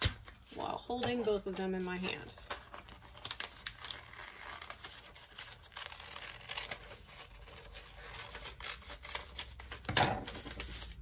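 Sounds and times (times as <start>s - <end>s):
paper rustling: 0.0s - 11.0s.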